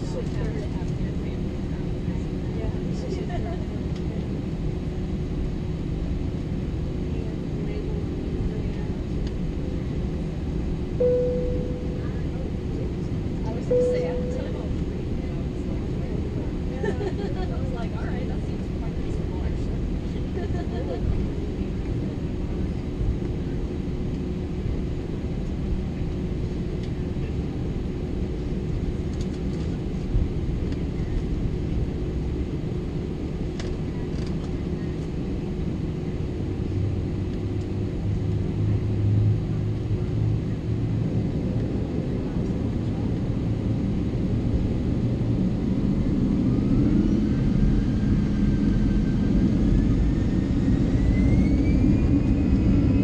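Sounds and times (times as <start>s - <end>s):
airplane cabin rumble: 0.0s - 53.0s
jet engines spooling up: 46.5s - 53.0s.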